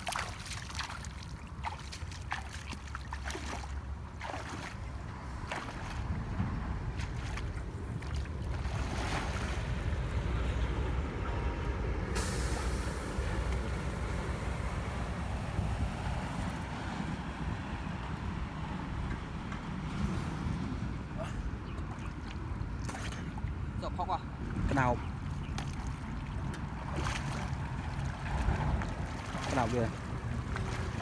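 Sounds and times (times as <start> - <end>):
water splashing: 0.0 - 10.3, 21.8 - 23.8, 24.5 - 31.0
wind rumbling on microphone: 3.8 - 12.1, 13.0 - 22.8, 23.5 - 31.0.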